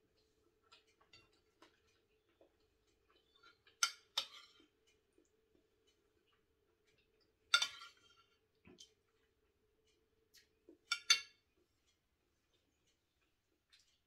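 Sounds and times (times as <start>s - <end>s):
faint steady hum: 0.0s - 14.0s
metal spoon clinking on ceramic dish: 7.5s - 8.2s, 10.9s - 11.4s.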